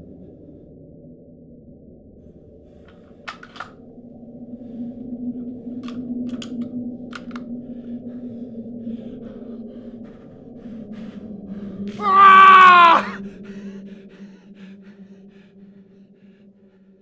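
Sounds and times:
low steady drone: 0.0 - 17.0
gun handling clicks: 2.9 - 3.8, 5.8 - 7.5
shaky breathing: 7.5 - 17.0.

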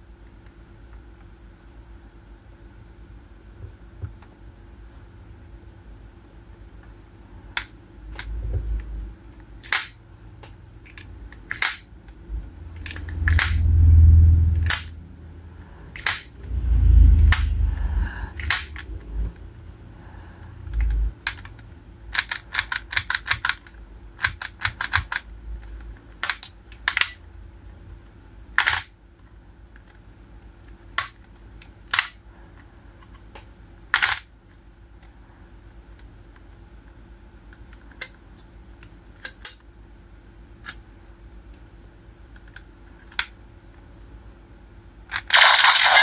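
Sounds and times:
plastic toy clicks: 20.7 - 25.3, 28.6 - 28.9.

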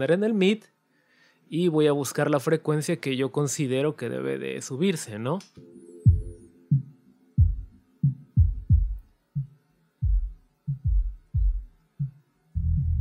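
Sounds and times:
continuous low bass: 6.1 - 6.5, 7.4 - 13.0
muffled kick drum thumps: 6.1 - 13.0.

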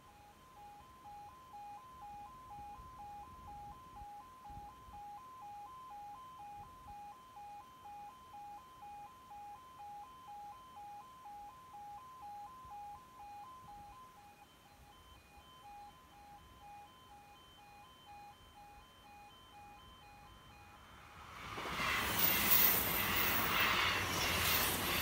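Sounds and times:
level crossing two-tone alarm: 0.0 - 25.0.

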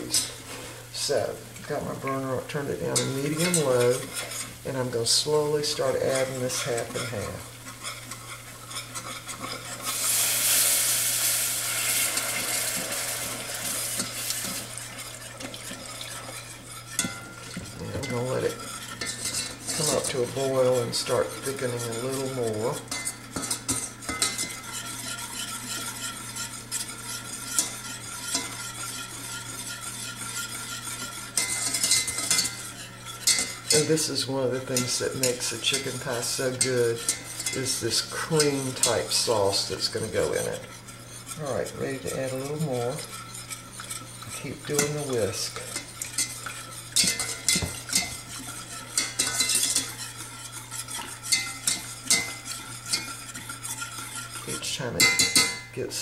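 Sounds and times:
whisk scraping a saucepan: 0.0 - 56.0
whisk clinking on metal: 2.0 - 55.8.

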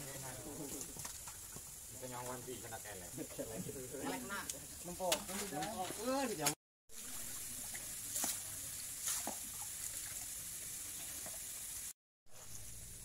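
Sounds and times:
outdoor hiss: 0.0 - 13.0
water noise: 0.0 - 13.0.

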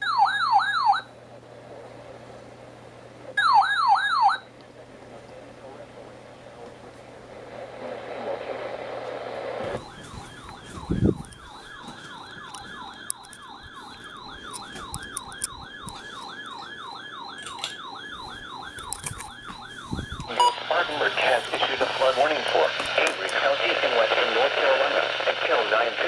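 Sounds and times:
warbling alert alarm: 0.0 - 1.1, 3.4 - 4.5, 9.8 - 22.3
broadcast voice: 20.3 - 26.0.

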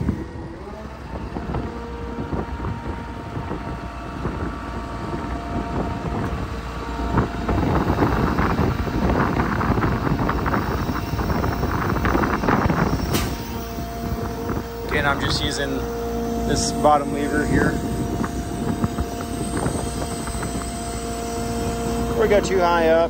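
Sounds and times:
diesel engine running: 0.0 - 23.0
faint humming tones: 0.0 - 23.0
wind buffeting microphone: 0.0 - 23.0.

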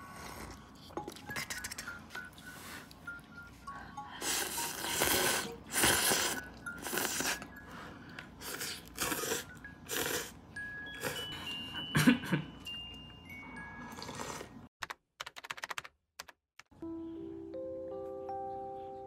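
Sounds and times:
person slurping noodles: 4.2 - 7.4, 8.4 - 10.4, 13.9 - 14.7.

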